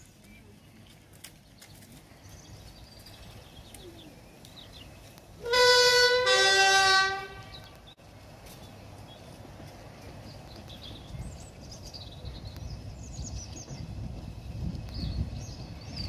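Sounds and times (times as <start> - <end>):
locomotive two-tone horn blasts: 5.4 - 7.7.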